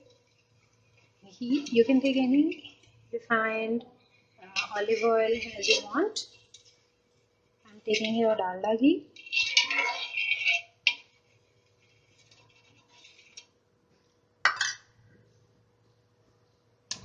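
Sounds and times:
metal spoon scraping a griddle: 0:00.0 - 0:13.5.

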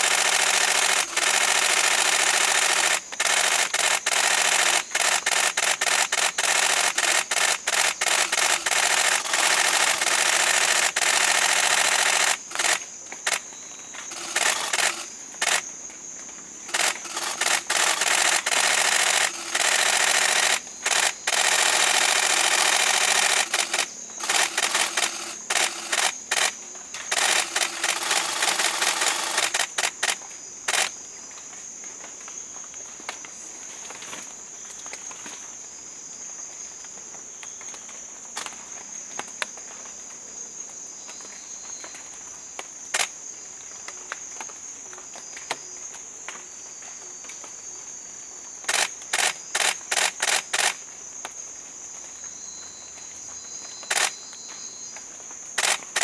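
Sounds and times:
camera shutter clicks: 0:00.0 - 0:13.4, 0:14.0 - 0:15.7, 0:16.7 - 0:30.9, 0:48.7 - 0:50.8, 0:53.8 - 0:54.2, 0:55.6 - 0:56.0
high insect chorus: 0:00.0 - 0:56.0.

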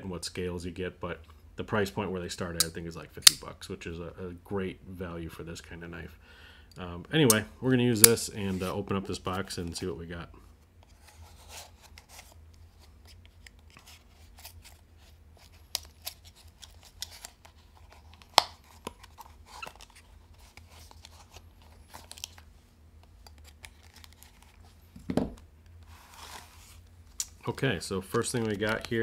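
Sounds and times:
box thump: 0:25.0 - 0:25.4.

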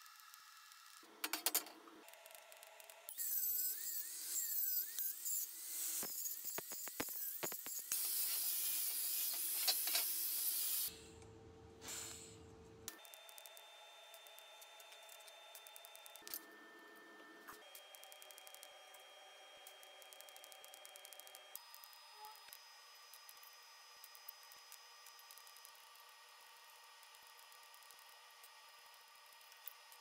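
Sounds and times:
angle grinder grinding steel: 0:03.2 - 0:10.9.

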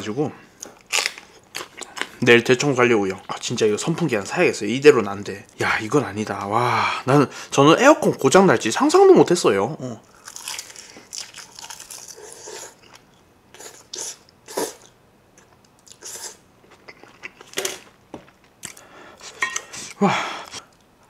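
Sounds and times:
person chewing food: 0:10.1 - 0:20.9.

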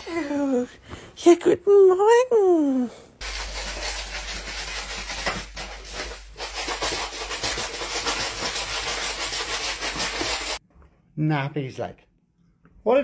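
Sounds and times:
litter granules scraping and rustling: 0:03.2 - 0:10.6.

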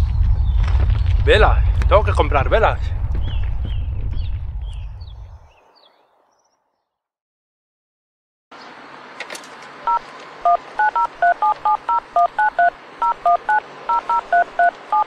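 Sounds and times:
steady background noise: 0:08.6 - 0:15.0
payphone keypad beeps: 0:09.9 - 0:15.0.

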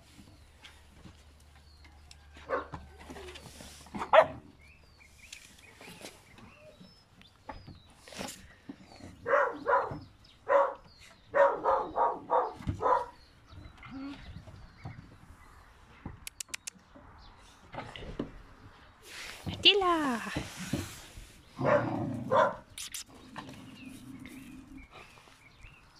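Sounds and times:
dog barking: 0:02.5 - 0:02.7, 0:04.1 - 0:04.4, 0:09.2 - 0:13.2, 0:21.6 - 0:22.6
birds chirping: 0:03.4 - 0:25.9.

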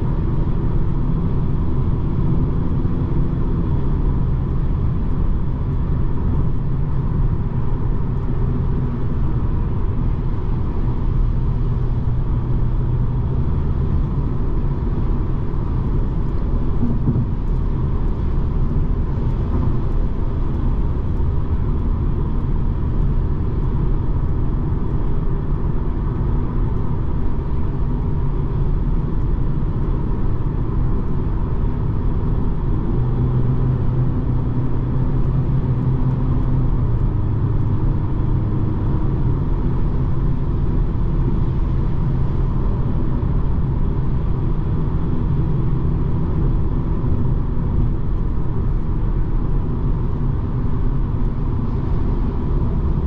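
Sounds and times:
diesel car engine rumble: 0:00.0 - 0:53.0
tyres on road: 0:00.0 - 0:53.0
deep hum: 0:10.4 - 0:31.8.

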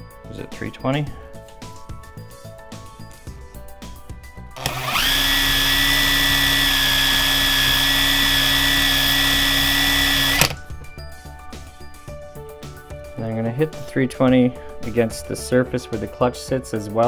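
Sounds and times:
cordless drill whining: 0:04.6 - 0:10.7.

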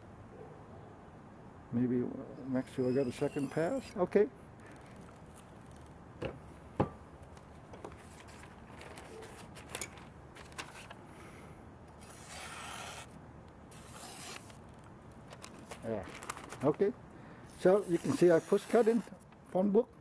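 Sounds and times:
knife cutting paper: 0:02.8 - 0:04.0, 0:11.9 - 0:14.6, 0:17.5 - 0:19.2.

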